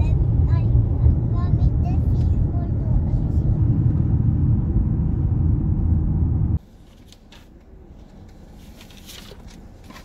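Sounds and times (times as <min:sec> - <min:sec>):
car driving rumble: 0:00.0 - 0:06.6
road and wind noise: 0:00.0 - 0:10.0.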